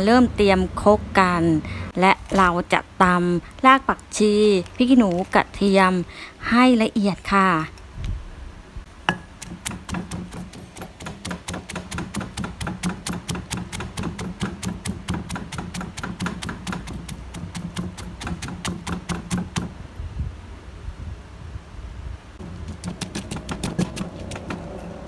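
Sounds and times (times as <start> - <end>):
pestle pounding in mortar: 9.1 - 19.7, 22.4 - 25.0.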